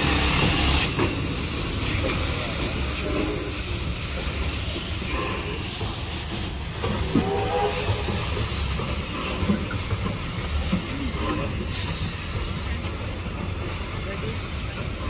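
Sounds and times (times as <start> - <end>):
low rumble of train moving: 0.0 - 15.0
steam locomotive hissing steam: 0.0 - 15.0.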